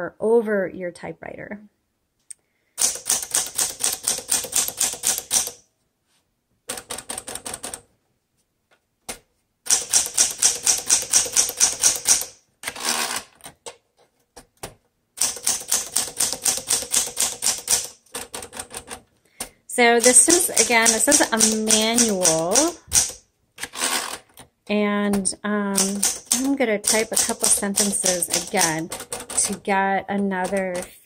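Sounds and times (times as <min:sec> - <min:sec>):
manual typewriter keystrokes: 0:02.8 - 0:05.6, 0:06.7 - 0:07.9, 0:09.7 - 0:13.6, 0:15.2 - 0:19.0, 0:20.0 - 0:24.5, 0:25.2 - 0:31.0
typewriter carriage return: 0:02.8 - 0:05.6, 0:09.7 - 0:13.7, 0:15.2 - 0:19.0, 0:20.0 - 0:24.4, 0:25.7 - 0:29.7.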